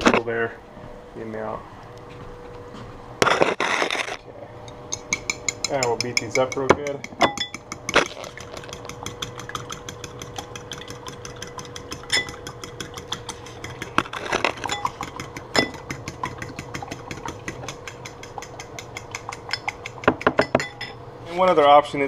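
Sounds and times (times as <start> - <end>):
utensil clicking against bowl: 4.6 - 20.6.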